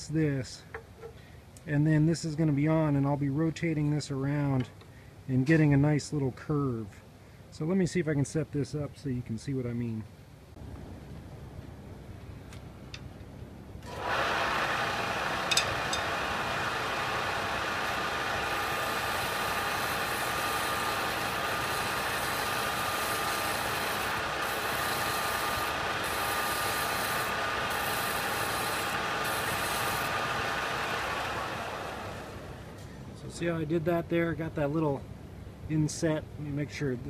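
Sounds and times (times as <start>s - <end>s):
belt sander motor whirring: 13.8s - 32.9s
wood sanding hiss: 14.2s - 32.4s.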